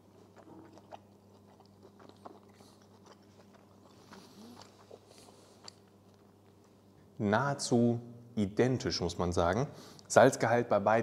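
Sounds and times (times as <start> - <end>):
chewing food: 0.0 - 7.2
low steady hum: 0.0 - 11.0.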